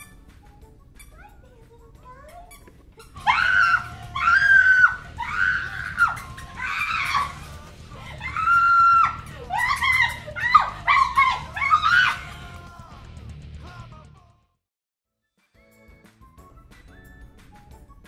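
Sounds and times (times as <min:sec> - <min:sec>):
woman screaming: 0:03.2 - 0:12.7.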